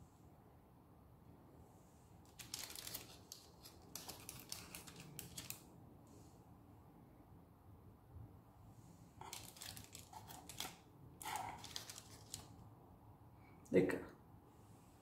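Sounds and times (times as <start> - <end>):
paper rustling: 2.3 - 5.7, 9.2 - 12.6
knife scraping on baking paper: 9.2 - 12.4.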